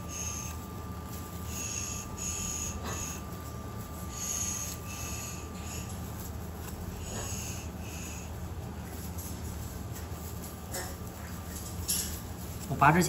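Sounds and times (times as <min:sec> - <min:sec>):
breathy huffs: 0:06.8 - 0:08.4.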